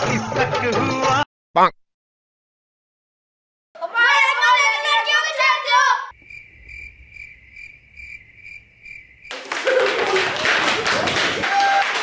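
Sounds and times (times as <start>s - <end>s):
cricket chirping: 6.1s - 9.4s.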